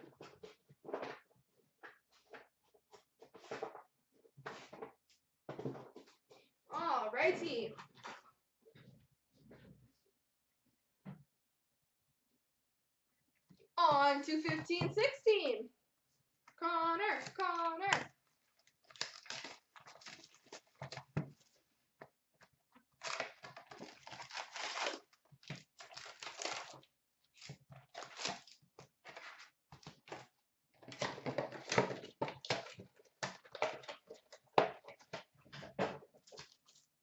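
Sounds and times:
wrapping tearing and crinkling: 17.2s - 21.6s, 22.9s - 35.1s.

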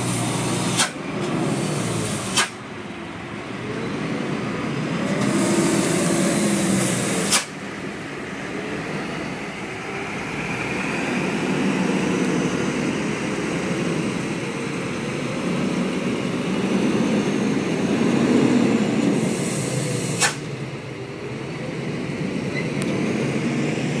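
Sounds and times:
diesel truck engine running: 0.0s - 24.0s
short hiss ending in click: 7.3s - 7.6s, 20.2s - 20.4s.

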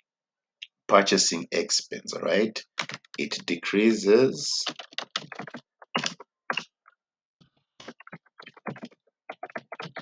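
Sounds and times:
computer keyboard typing: 2.7s - 3.4s, 4.6s - 6.7s, 7.8s - 10.0s.

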